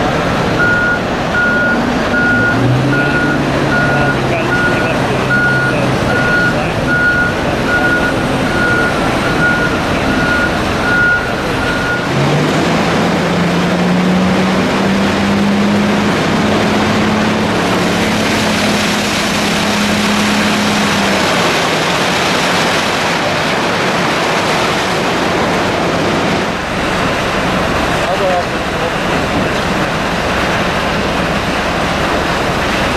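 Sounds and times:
diesel engine revving: 0:00.0 - 0:32.9
reverse alarm beeping: 0:00.6 - 0:12.1.

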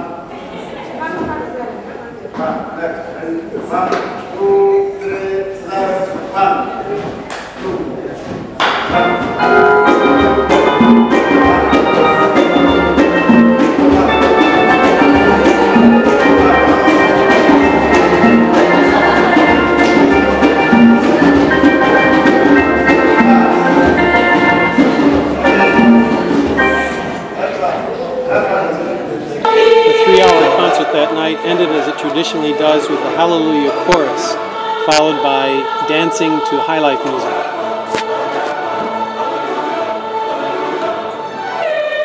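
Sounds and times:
choir singing held chords: 0:08.7 - 0:42.0.

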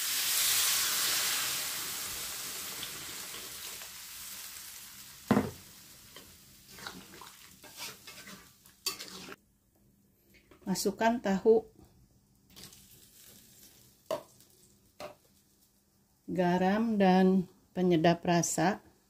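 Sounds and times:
water sizzling in hot wok: 0:00.0 - 0:09.4, 0:12.5 - 0:15.7
metal spatula scraping wok: 0:07.6 - 0:09.4.

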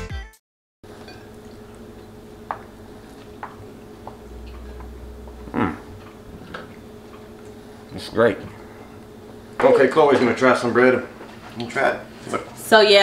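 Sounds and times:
room hum: 0:00.8 - 0:13.0
man chewing bread: 0:01.0 - 0:07.9
man humming mm: 0:05.3 - 0:06.0.

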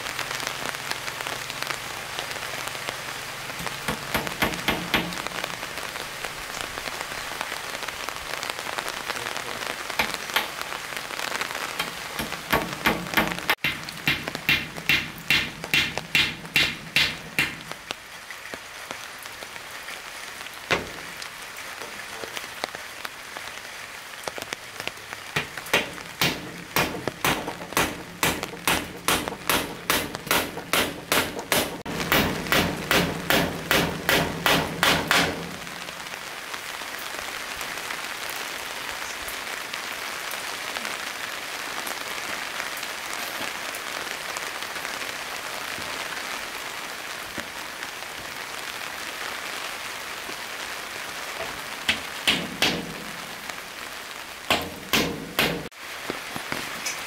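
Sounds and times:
hammer striking wood: 0:03.6 - 0:05.2, 0:11.8 - 0:17.8, 0:20.7 - 0:21.0, 0:25.4 - 0:35.6, 0:51.9 - 0:53.2, 0:54.5 - 0:55.7.

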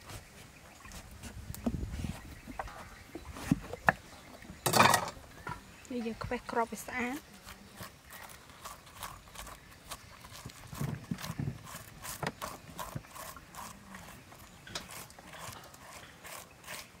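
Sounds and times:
fingers scooping wet seeds: 0:06.0 - 0:17.0.

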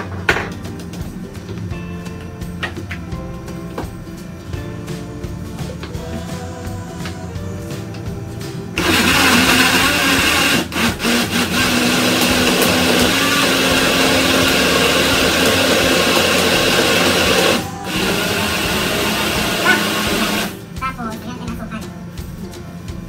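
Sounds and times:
blender running: 0:08.8 - 0:20.7.

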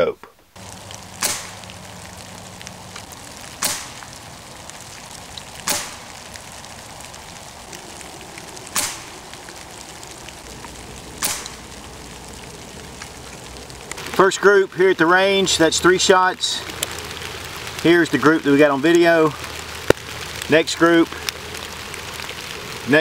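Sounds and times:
steady background hiss: 0:00.0 - 0:23.0
air rifle shots cracking: 0:01.2 - 0:01.7, 0:03.6 - 0:04.1, 0:05.6 - 0:06.2, 0:08.7 - 0:09.3, 0:11.2 - 0:11.7
pellets striking paper target: 0:01.2 - 0:01.7, 0:03.6 - 0:04.0, 0:05.6 - 0:06.1, 0:08.7 - 0:09.2.

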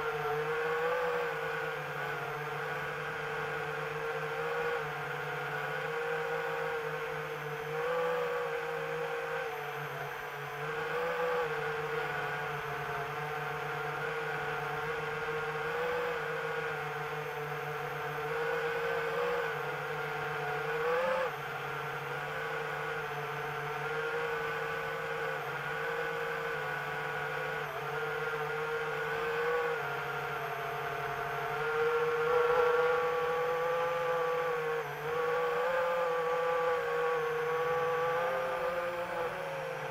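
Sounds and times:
drone motors whirring: 0:00.0 - 0:39.9.

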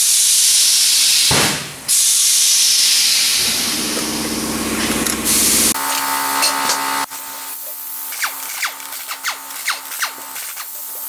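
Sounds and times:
loud steady hiss: 0:00.0 - 0:11.0
low hum: 0:03.2 - 0:07.1.

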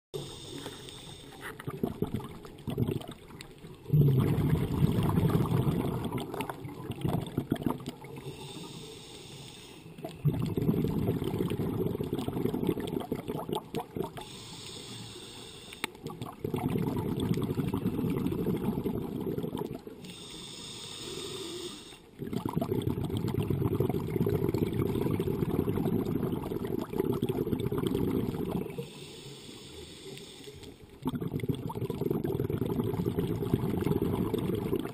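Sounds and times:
regulator hiss on inhale: 0:00.2 - 0:01.6, 0:08.2 - 0:10.0, 0:14.2 - 0:16.0, 0:20.0 - 0:22.2, 0:28.6 - 0:30.9
rumble of exhaled bubbles: 0:01.3 - 0:08.4, 0:10.0 - 0:14.3, 0:16.0 - 0:20.0, 0:22.1 - 0:28.8, 0:30.9 - 0:34.9.

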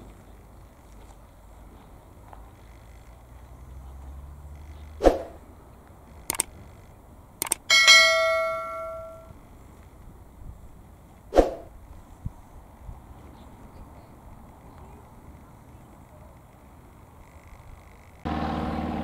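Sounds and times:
mouse clicks: 0:06.3 - 0:06.5, 0:07.4 - 0:07.6
notification bell ding: 0:07.7 - 0:09.3.

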